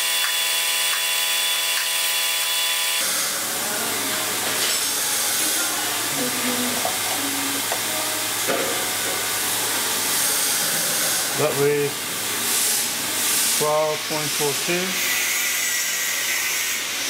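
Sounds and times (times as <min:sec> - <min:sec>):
lathe motor whining: 0:00.0 - 0:17.0.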